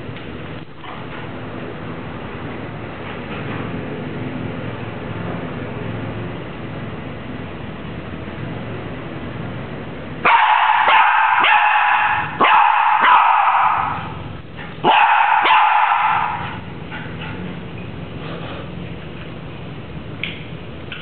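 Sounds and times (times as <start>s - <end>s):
dog barking: 10.2s - 14.1s, 14.8s - 16.6s.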